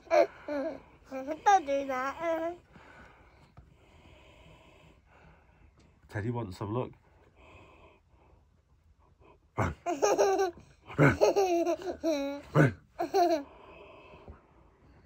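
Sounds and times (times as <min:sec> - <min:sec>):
toddler laughing: 0:09.6 - 0:13.5.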